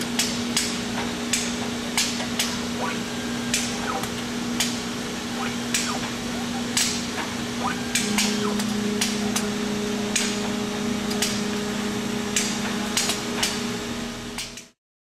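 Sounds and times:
machine hum: 0.0s - 14.8s
rising motor whine: 7.7s - 14.8s.

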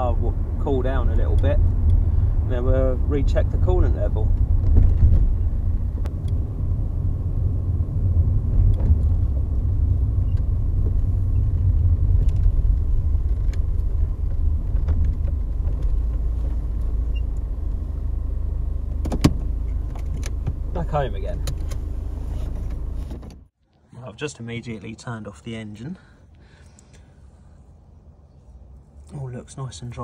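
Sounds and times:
car engine and road rumble: 0.0s - 30.0s.

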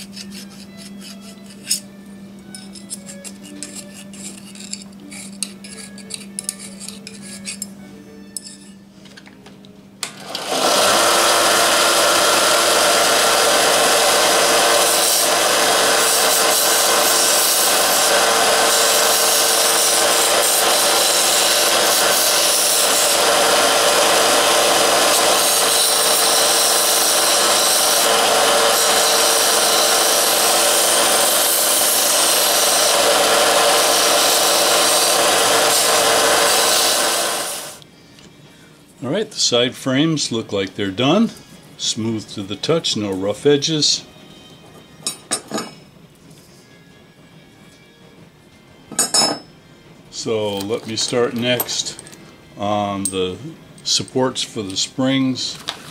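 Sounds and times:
file scraping metal: 0.0s - 1.9s, 2.5s - 7.8s, 10.7s - 37.8s
belt sander grinding: 10.1s - 37.8s.

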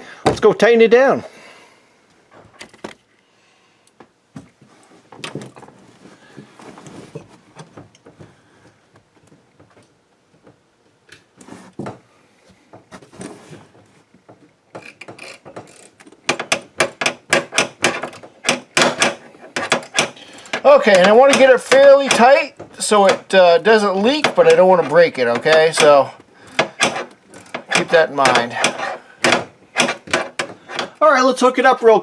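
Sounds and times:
hands rustling and knocking: 4.0s - 14.6s
ratchet clicking: 14.8s - 22.2s, 25.4s - 30.9s.

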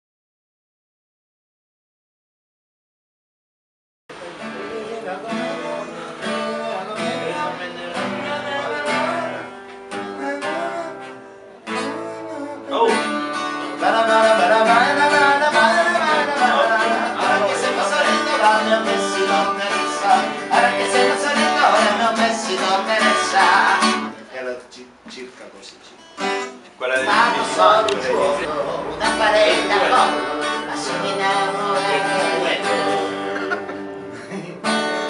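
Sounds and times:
man singing: 4.1s - 24.2s, 26.9s - 34.1s
acoustic guitar strumming: 4.1s - 24.3s, 25.8s - 35.0s.

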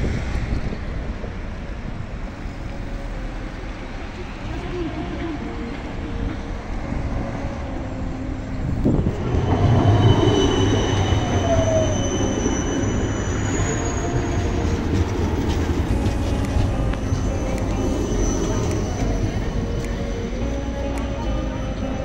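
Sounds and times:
tram rumbling: 0.0s - 22.0s
high wheel squeals: 4.3s - 20.9s.

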